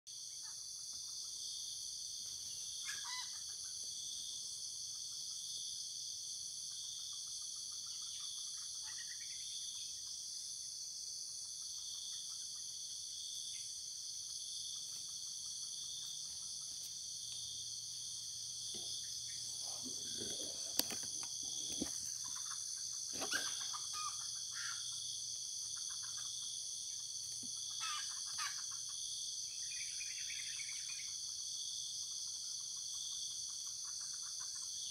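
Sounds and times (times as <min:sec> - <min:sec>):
insects chirring: 0:00.1 - 0:34.9
short bird calls: 0:22.2 - 0:24.9.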